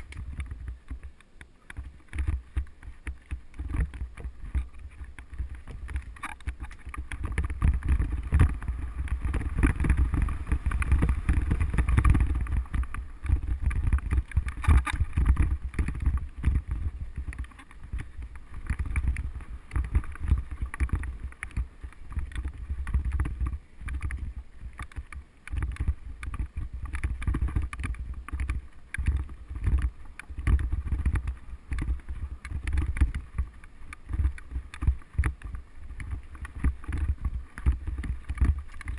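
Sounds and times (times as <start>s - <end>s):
bike rattling and knocking: 0.0s - 38.9s
bike tyres on dirt: 0.0s - 38.9s
wind rumbling on microphone: 0.0s - 38.9s.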